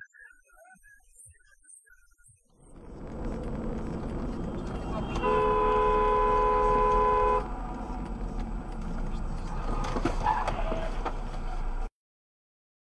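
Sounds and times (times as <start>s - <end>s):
road traffic noise: 2.6s - 11.9s
two-note car horn: 4.8s - 7.5s.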